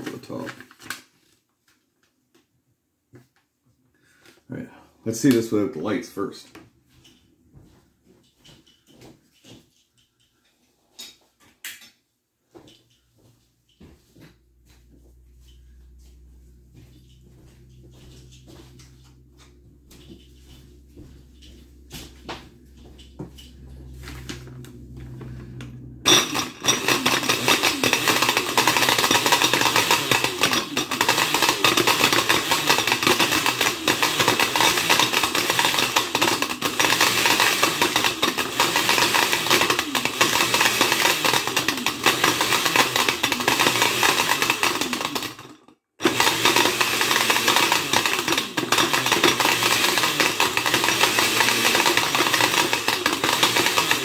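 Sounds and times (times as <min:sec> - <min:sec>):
blender motor running: 0:24.3 - 0:54.0
plastic pieces rattling in jar: 0:26.1 - 0:45.5.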